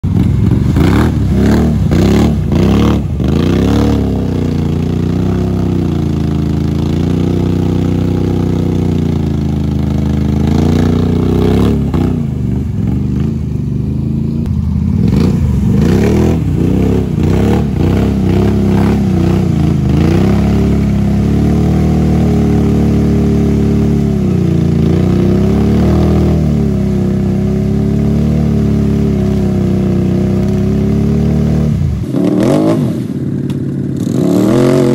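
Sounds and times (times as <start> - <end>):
quad bike engine revving: 0.0 - 34.9
tyres splashing through mud: 0.1 - 13.3.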